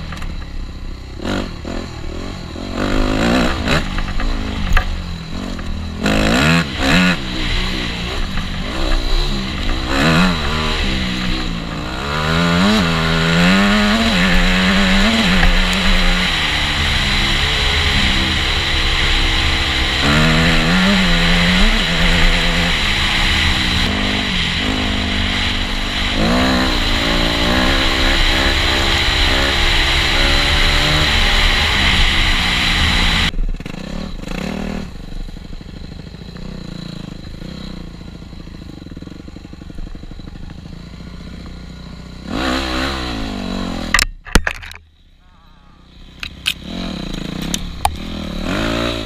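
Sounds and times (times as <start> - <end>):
dirt bike engine revving: 0.0 - 44.3, 45.6 - 49.0.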